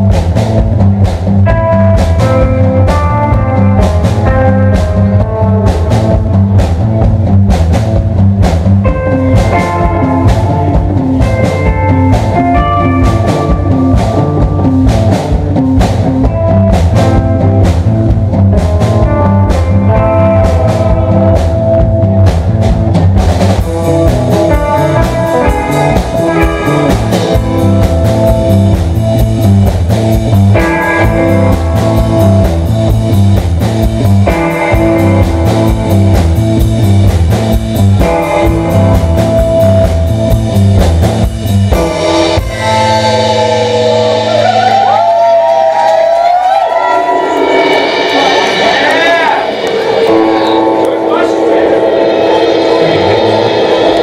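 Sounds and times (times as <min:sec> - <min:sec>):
rock band playing: 0:00.0 - 0:54.0
cymbal playing: 0:41.8 - 0:44.9.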